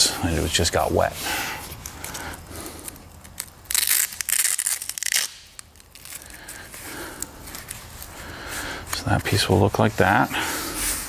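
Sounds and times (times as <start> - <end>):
rubbing and handling noise: 0.3 - 11.0
loud ripping crackle: 1.8 - 8.2.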